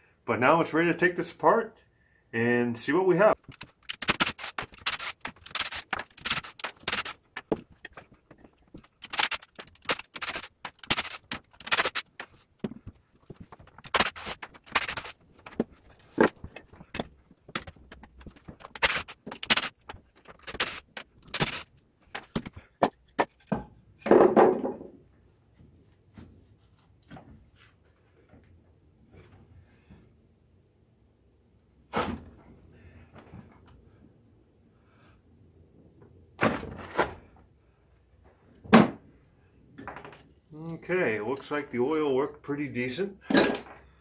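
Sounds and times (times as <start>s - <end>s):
wood scraping and knocking: 3.4s - 25.0s.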